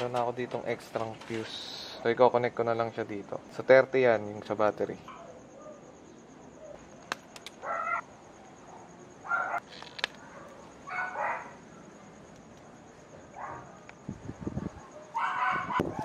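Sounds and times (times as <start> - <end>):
small sharp clicks: 7.0 - 7.6, 9.6 - 10.2
animal calling: 7.6 - 8.1.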